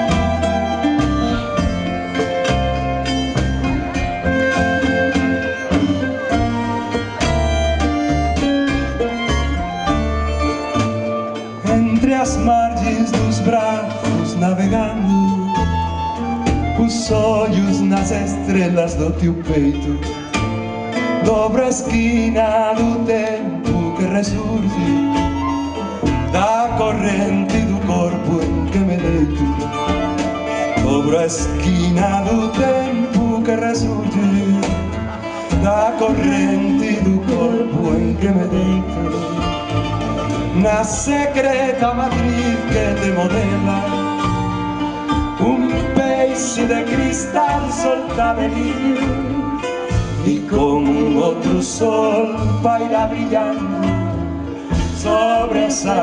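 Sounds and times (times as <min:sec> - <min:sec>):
double bass: 0:00.0 - 0:56.0
strummed guitar: 0:00.0 - 0:56.0
violin: 0:00.0 - 0:56.0
person singing: 0:25.8 - 0:39.8, 0:40.5 - 0:56.0.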